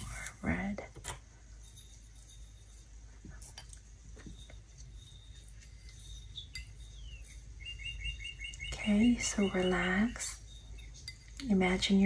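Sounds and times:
light clinks and taps: 0.9 - 7.6, 9.4 - 12.0.

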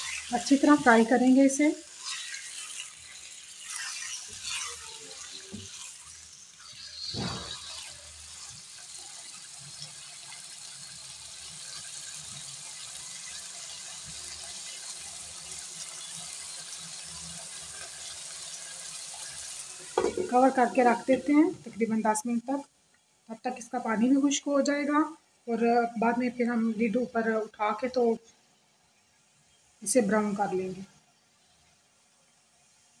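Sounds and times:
spatula scraping and stirring: 0.0 - 10.4
chicken sizzling in hot oil: 0.0 - 33.0.

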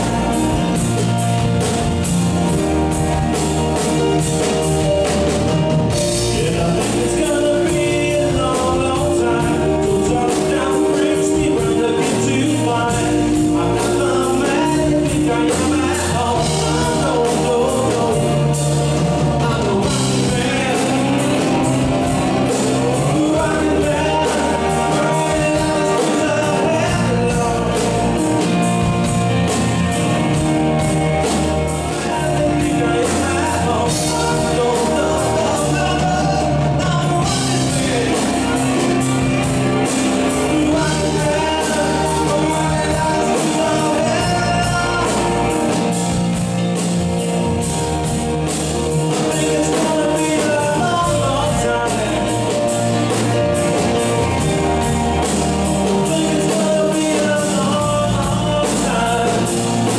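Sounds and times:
live rock band playing: 0.0 - 59.9
man singing lead: 0.0 - 59.9.

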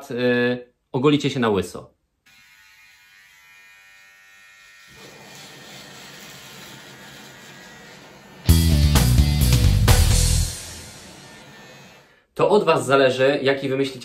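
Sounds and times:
electric hair trimmer buzzing: 2.2 - 12.1
loud guitar music: 8.4 - 11.1.

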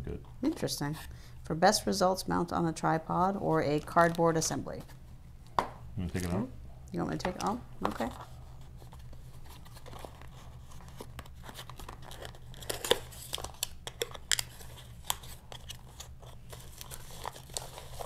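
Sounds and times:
plastic packaging crinkling: 8.9 - 18.0.

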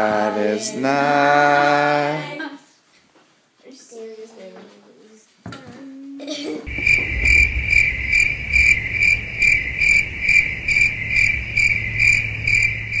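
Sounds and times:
cricket chirping: 6.7 - 13.0.

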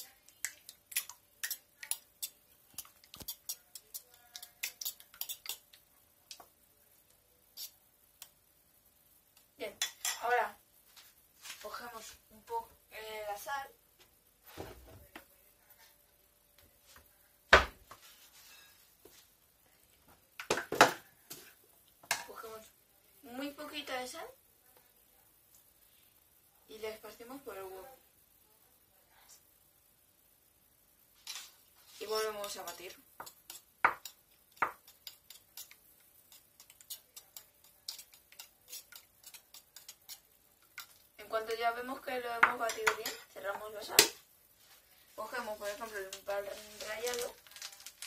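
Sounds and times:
fork beating egg in bowl: 0.0 - 6.4, 7.6 - 8.3, 31.9 - 41.6.

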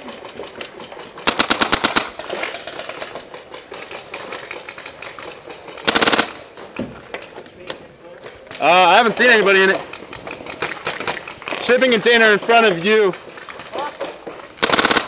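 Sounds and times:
paintball marker firing bursts: 1.2 - 2.3, 5.8 - 6.5, 14.6 - 15.0.

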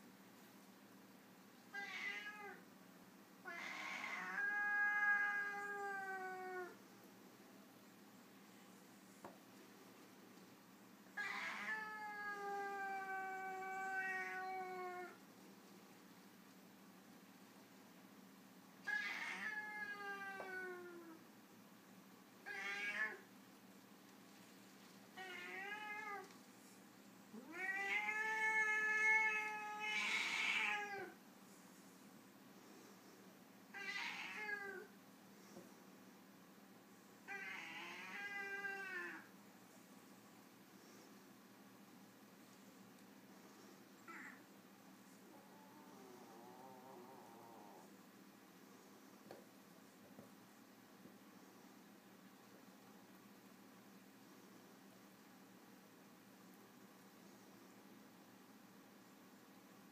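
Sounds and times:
cat yowling: 1.7 - 2.6, 3.4 - 6.8, 11.2 - 15.2, 18.9 - 21.2, 22.5 - 23.2, 27.4 - 31.2, 33.8 - 34.9, 37.3 - 39.3.

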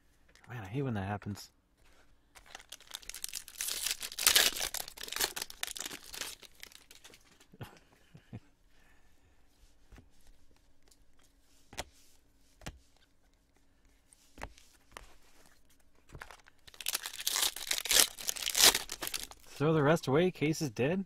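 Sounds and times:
foil card pack crinkled and torn: 2.4 - 7.2, 16.2 - 19.5.

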